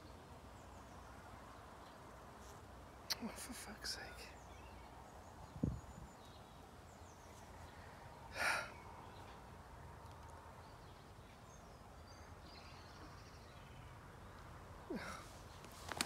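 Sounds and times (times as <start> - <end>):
breathy sigh: 8.3 - 8.8, 14.9 - 15.3.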